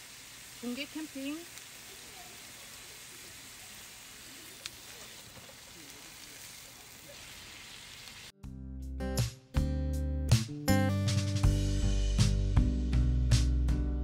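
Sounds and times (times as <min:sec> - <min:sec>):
faint outdoor background hiss: 0:00.0 - 0:08.3
background music: 0:08.4 - 0:14.0.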